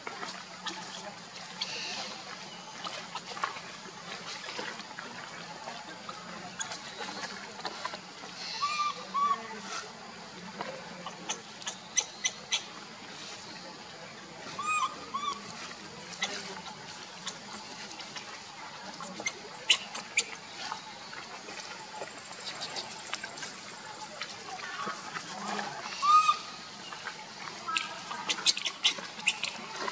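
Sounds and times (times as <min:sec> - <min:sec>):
forest background noise: 0:00.0 - 0:29.9
baby monkey squeaking: 0:11.3 - 0:12.7, 0:28.3 - 0:29.6.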